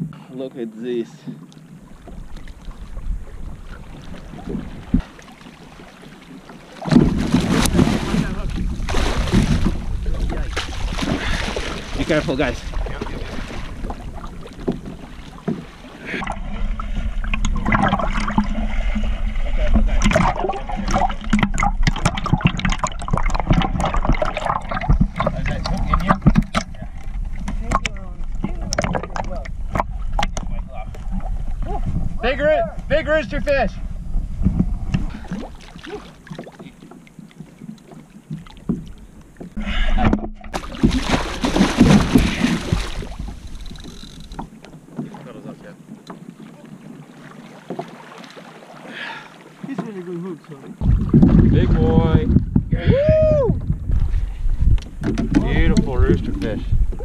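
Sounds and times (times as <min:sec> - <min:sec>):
water splashing against kayak hull: 0:01.1 - 0:57.0
knocks against kayak hull: 0:06.8 - 0:11.7, 0:14.6 - 0:15.7, 0:47.6 - 0:48.0, 0:54.7 - 0:55.9.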